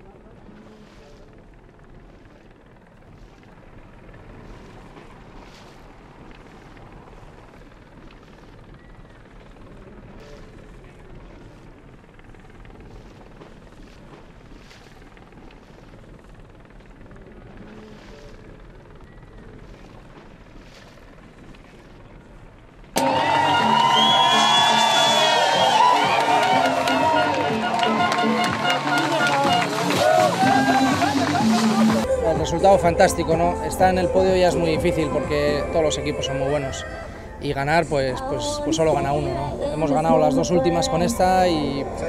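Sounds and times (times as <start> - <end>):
boat engine rumble: 0.0 - 42.0
loud music: 23.0 - 36.8.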